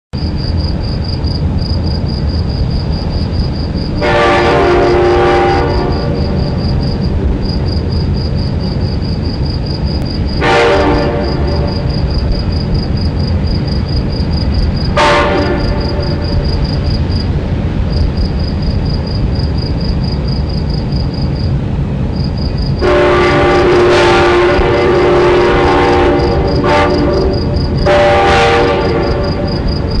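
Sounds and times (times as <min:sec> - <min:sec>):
crickets chirping: 0:00.2 - 0:30.0
steady low rumble: 0:00.2 - 0:30.0
train horn blasts: 0:04.0 - 0:06.6, 0:10.4 - 0:12.4, 0:14.9 - 0:16.6, 0:22.8 - 0:30.0.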